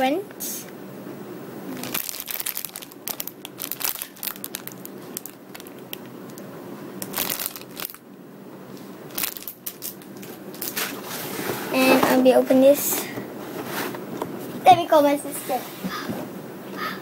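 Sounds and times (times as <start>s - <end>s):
plastic bag crinkling: 1.7s - 6.4s, 7.0s - 8.0s, 9.1s - 11.0s.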